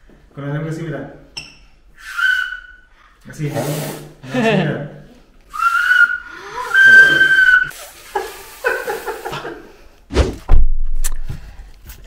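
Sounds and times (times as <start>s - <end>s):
high whistled note: 2.0s - 2.9s, 5.5s - 7.8s
short vocal sounds: 6.5s - 7.7s.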